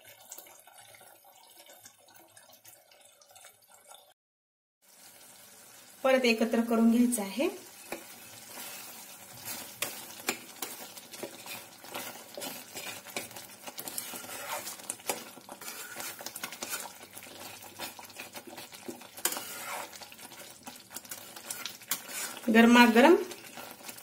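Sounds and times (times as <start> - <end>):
spatula scraping a pan: 7.7 - 24.0.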